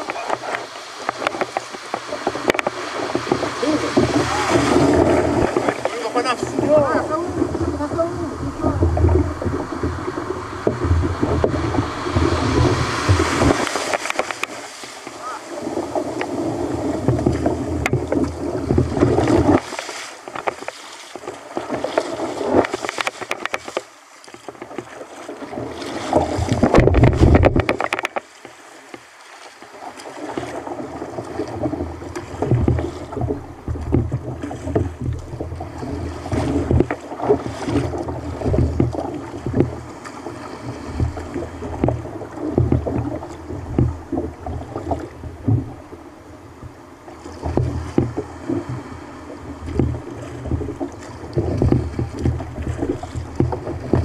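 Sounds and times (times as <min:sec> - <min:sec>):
water splashing against kayak hull: 0:00.0 - 0:54.0.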